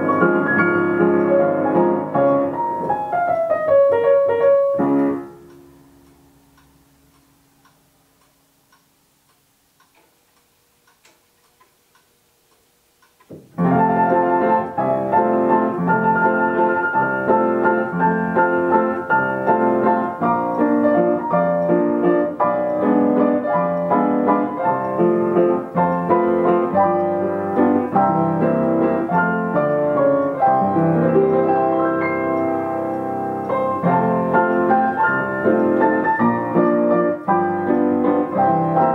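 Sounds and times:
piano playing: 0.0s - 6.4s, 13.5s - 38.9s
faint ticks: 5.0s - 13.4s.

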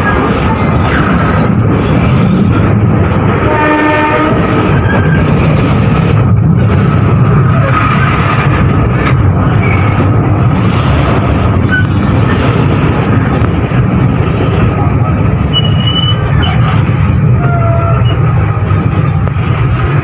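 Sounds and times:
train rumbling: 0.0s - 20.0s
train horn blast: 3.4s - 4.7s.

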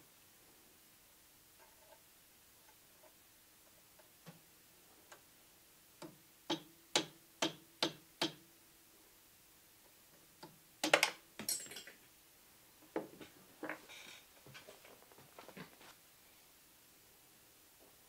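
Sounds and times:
hammer tapping metal pin punch: 6.0s - 8.4s.

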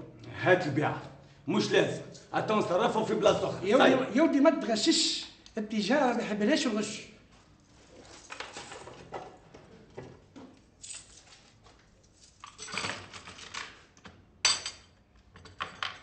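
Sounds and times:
metal tools clinking: 12.2s - 13.4s.

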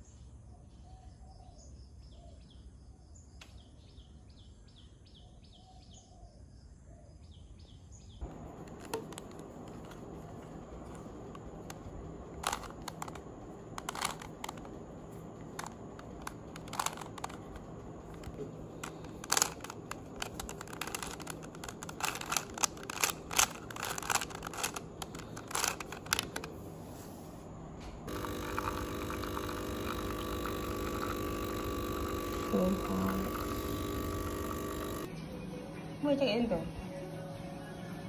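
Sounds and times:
coffee machine pump humming: 8.2s - 35.1s
puzzle cube clicking as turned: 8.3s - 26.5s.

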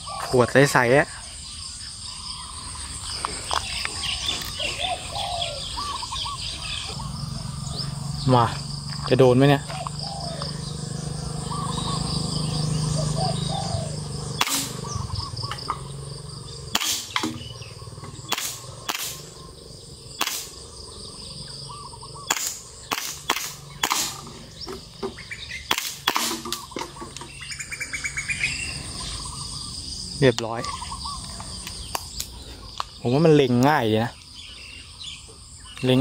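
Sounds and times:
birds chirping: 0.0s - 36.0s
airsoft pistol shots: 14.4s - 14.8s, 16.7s - 17.5s, 18.3s - 19.3s, 20.2s - 20.6s, 22.3s - 24.3s, 25.7s - 26.6s.

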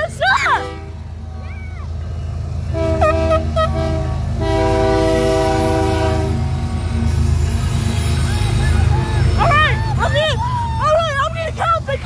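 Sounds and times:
low rumble of passing locomotives: 0.0s - 12.0s
locomotive air horn blasts: 0.6s - 1.1s, 2.7s - 6.8s.

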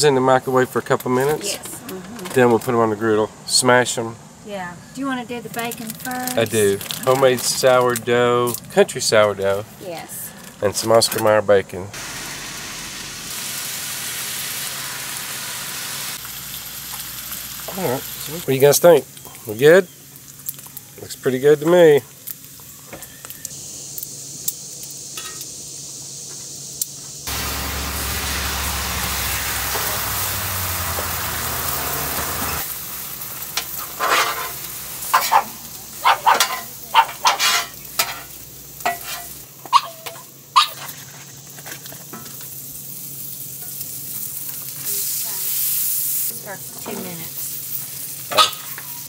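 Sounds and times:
bacon sizzling on a griddle: 4.2s - 49.0s
sharp scrapes and clinks: 34.0s - 35.5s, 36.3s - 39.4s.

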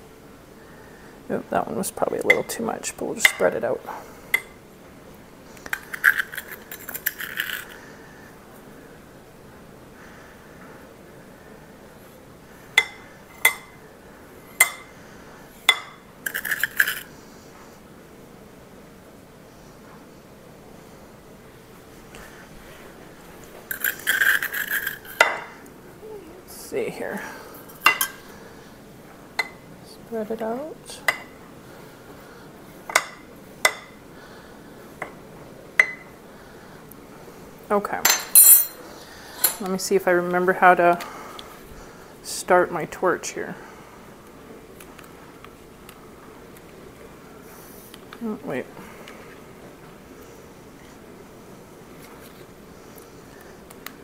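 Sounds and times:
metal spoon clinking on ceramic: 38.1s - 38.8s.

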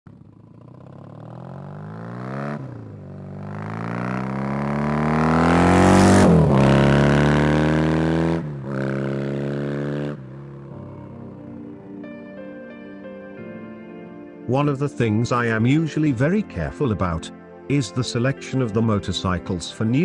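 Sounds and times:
motorcycle engine accelerating: 0.1s - 12.2s.

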